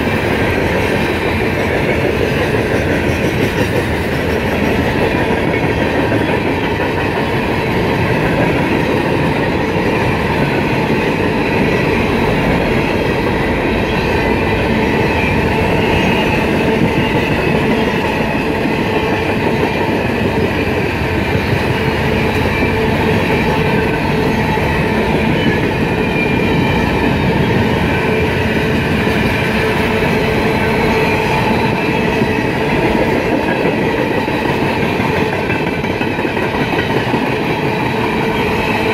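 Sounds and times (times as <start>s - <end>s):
freight train wheels rumbling: 0.0s - 38.9s.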